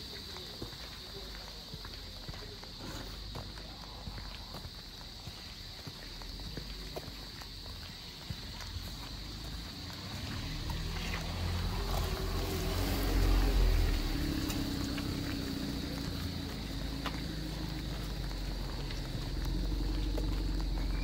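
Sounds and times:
car passing at low speed: 8.0s - 21.0s.

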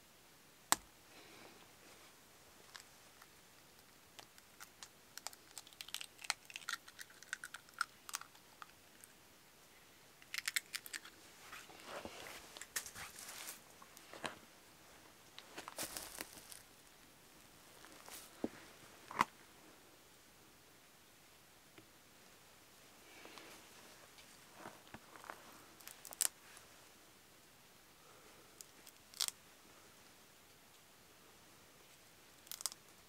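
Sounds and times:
eggshells cracking: 3.8s - 8.8s, 10.2s - 11.2s, 25.8s - 26.3s, 32.4s - 32.8s.

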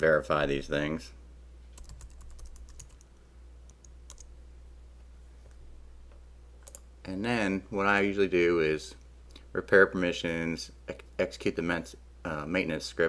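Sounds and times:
low steady hum: 0.0s - 13.0s
keyboard and mouse clicking: 1.8s - 3.1s, 3.7s - 4.3s, 6.6s - 6.9s.

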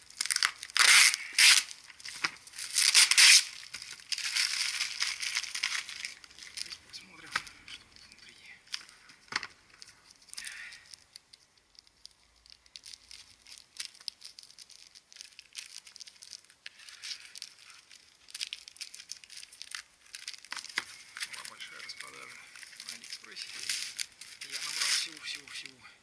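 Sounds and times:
plastic bag crinkling and tearing: 0.0s - 25.8s
scissors cutting plastic: 0.1s - 7.8s.

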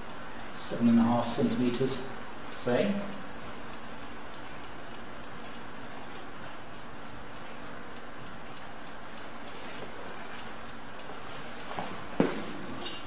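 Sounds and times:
stopclock ticking rapidly: 0.0s - 9.3s.

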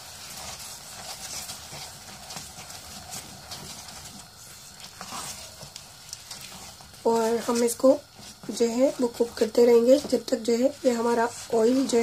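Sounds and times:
faint frying sizzle: 0.0s - 12.0s
spatula scraping a pot: 4.3s - 12.0s.

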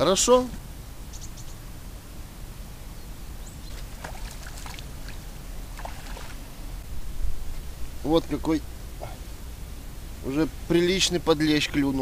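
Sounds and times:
fish splashing in water: 3.8s - 6.4s.

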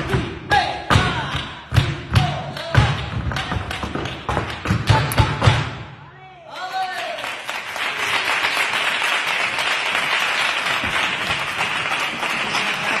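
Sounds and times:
group applauding: 6.5s - 13.0s.

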